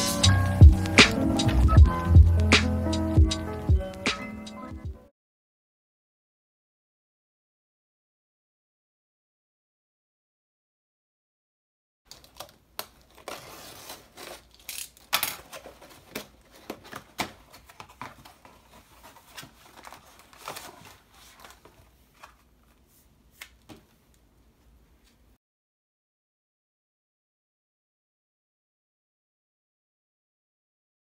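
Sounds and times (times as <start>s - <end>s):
paper and packaging rustling: 12.1s - 23.9s.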